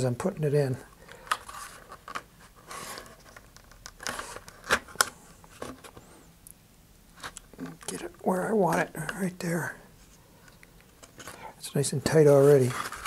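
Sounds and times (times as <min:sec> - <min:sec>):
paper tube scraping and rustling: 0:01.5 - 0:03.4, 0:12.2 - 0:13.0.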